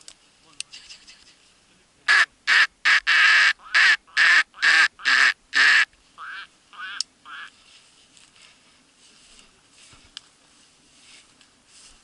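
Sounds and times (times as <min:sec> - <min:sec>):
duck quacking: 0:02.1 - 0:07.6.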